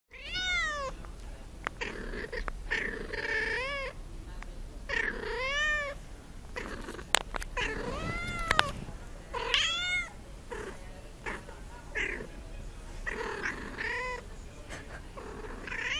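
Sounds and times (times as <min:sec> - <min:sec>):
cat meowing: 0:00.1 - 0:00.9, 0:04.9 - 0:06.0, 0:07.6 - 0:10.2, 0:15.6 - 0:15.9.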